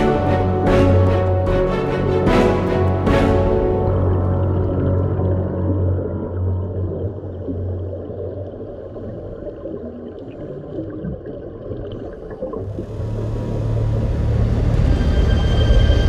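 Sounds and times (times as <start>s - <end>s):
dark soundtrack music: 0.0s - 9.4s, 12.4s - 16.0s
muffled underwater rumble: 3.9s - 16.0s.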